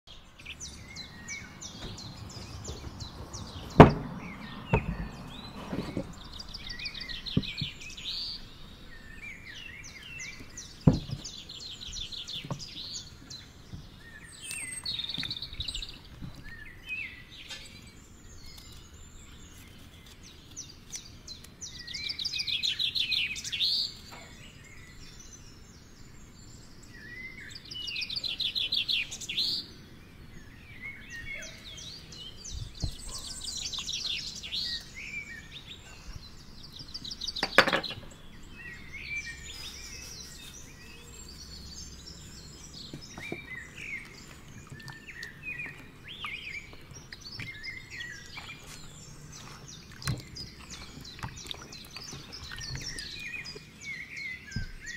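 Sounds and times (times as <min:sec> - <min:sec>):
songbirds chirping and trilling: 0:00.1 - 0:54.9
sharp knocks: 0:01.8 - 0:05.2, 0:10.8 - 0:11.3.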